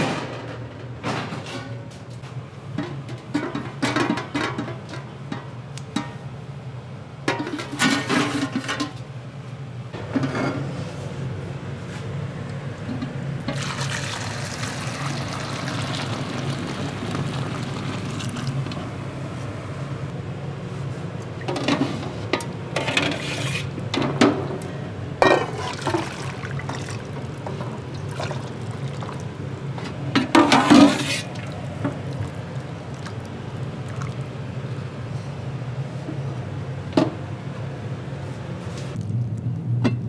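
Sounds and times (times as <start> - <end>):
liquid pouring and splashing: 13.5 - 18.8, 25.5 - 29.4, 30.7 - 34.9.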